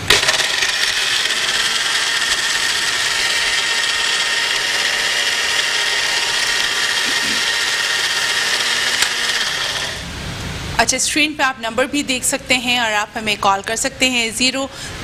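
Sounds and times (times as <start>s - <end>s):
blender motor whine: 0.0s - 10.1s.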